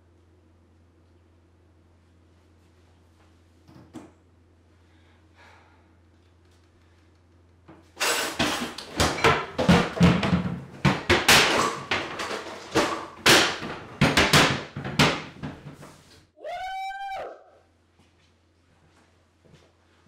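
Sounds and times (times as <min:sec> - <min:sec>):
drawers and cabinet doors banging: 0:08.0 - 0:16.0.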